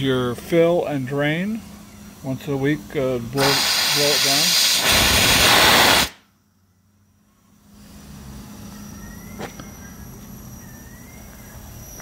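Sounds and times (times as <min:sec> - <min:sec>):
faint steady hum: 0:00.0 - 0:04.2, 0:05.0 - 0:12.0
steam valve hissing: 0:03.3 - 0:06.2.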